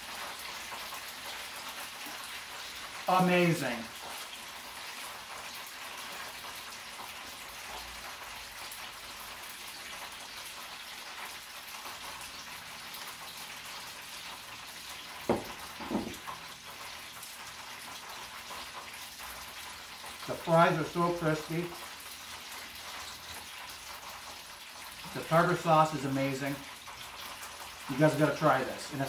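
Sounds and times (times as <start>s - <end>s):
steady hiss: 1.6s - 6.4s, 25.0s - 26.7s.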